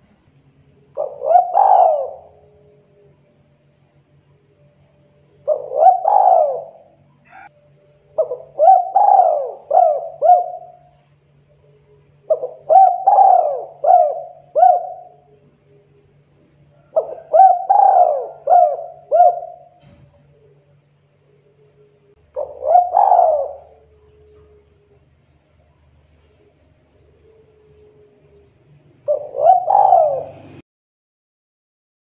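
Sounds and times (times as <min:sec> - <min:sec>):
dove cooing: 0:00.9 - 0:03.1, 0:05.4 - 0:07.5, 0:08.1 - 0:11.0, 0:11.8 - 0:16.0, 0:16.7 - 0:20.7, 0:21.6 - 0:25.1, 0:27.0 - 0:30.6.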